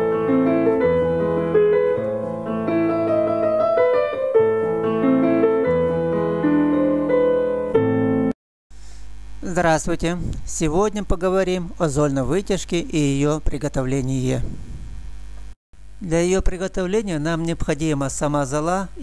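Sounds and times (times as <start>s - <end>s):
piano-like keyboard melody: 0.0s - 8.4s.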